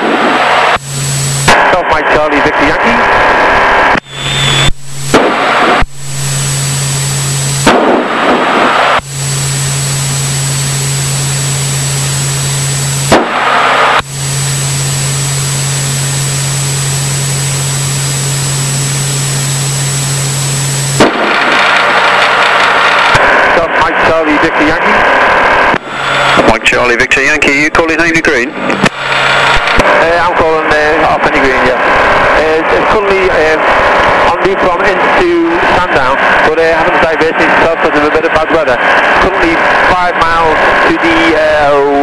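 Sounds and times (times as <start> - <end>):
low hum: 0.0 - 42.0
radio static hiss: 0.0 - 42.0
radio click: 20.9 - 23.4, 28.2 - 30.2.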